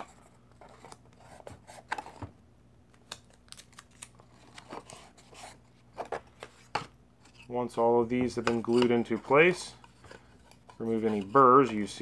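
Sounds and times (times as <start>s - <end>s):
tape tearing and crackling: 2.9s - 5.0s.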